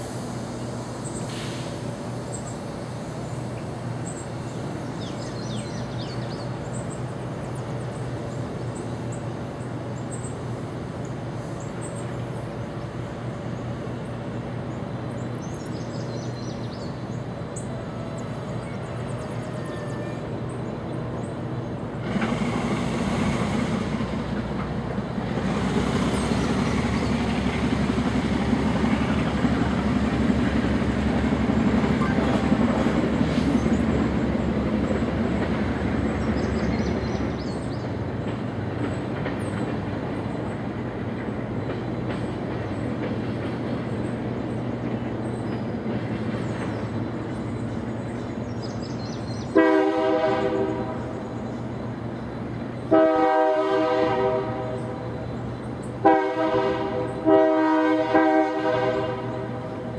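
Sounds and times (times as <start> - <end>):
diesel locomotive engine rumble: 0.0 - 59.9
locomotive horn blast: 49.6 - 51.0, 52.9 - 55.0, 56.0 - 59.5.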